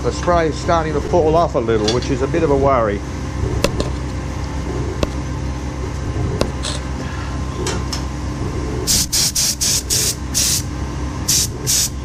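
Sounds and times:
gas burner flame rumbling: 0.0 - 12.0
short bursts of hissing: 8.9 - 10.6, 11.3 - 11.9.

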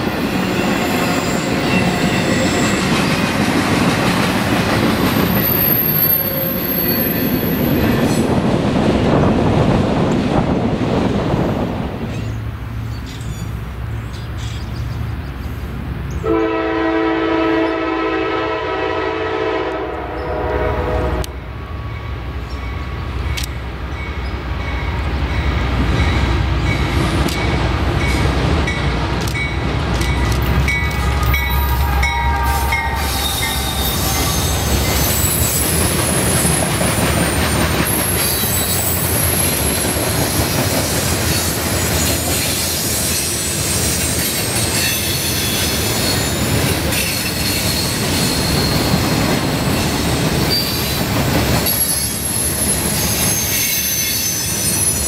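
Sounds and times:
train horn blast: 16.2 - 21.4, 30.8 - 35.1
high-pitched wheel squeal: 31.0 - 35.8, 51.6 - 55.0.

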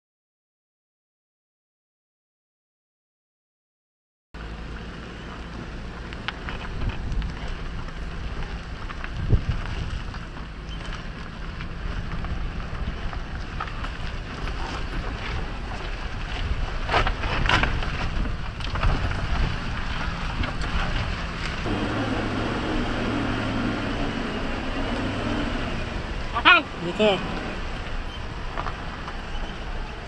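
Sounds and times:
vehicle engine drone: 4.4 - 30.0
wind noise on microphone: 6.4 - 30.0.

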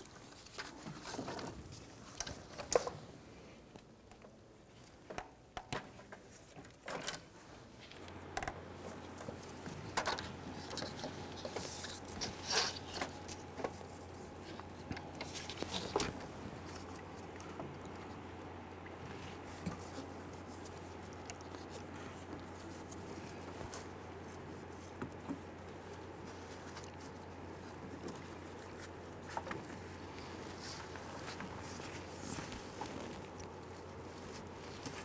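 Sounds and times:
rustling of gloved hands: 7.4 - 35.0.

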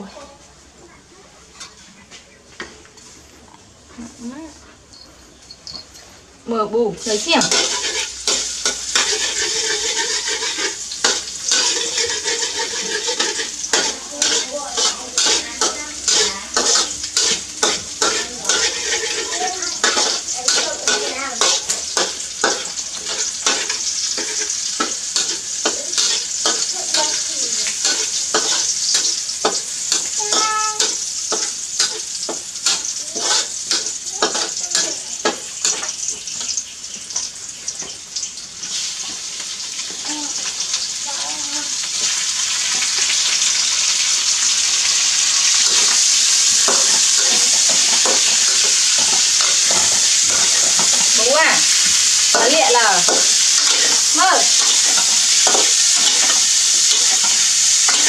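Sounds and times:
food sizzling in hot oil: 3.0 - 58.0
metal ladle scraping a wok: 7.4 - 26.4, 53.1 - 58.0.

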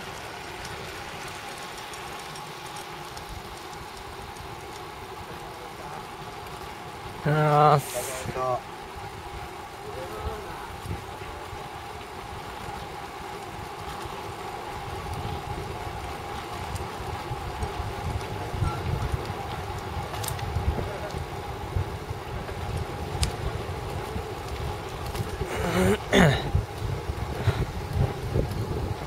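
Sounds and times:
road rumble: 0.0 - 29.0
wind noise on microphone: 14.7 - 29.0.

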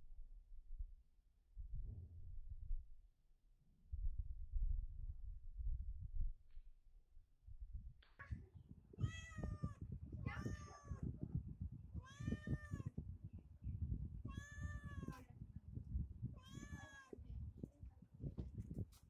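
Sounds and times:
cat meowing: 9.0 - 11.1, 12.0 - 12.9, 14.3 - 15.2, 16.4 - 17.2.

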